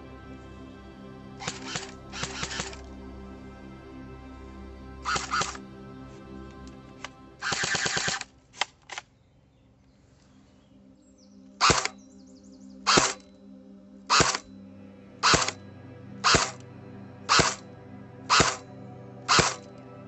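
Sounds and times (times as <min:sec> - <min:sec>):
background music: 0:00.0 - 0:20.0
airsoft gun firing: 0:01.4 - 0:02.8, 0:05.1 - 0:05.5, 0:07.4 - 0:08.3, 0:11.6 - 0:11.9, 0:12.9 - 0:13.2, 0:14.1 - 0:14.4, 0:15.2 - 0:15.6, 0:16.3 - 0:16.6, 0:17.3 - 0:17.6, 0:18.3 - 0:18.6, 0:19.3 - 0:19.7.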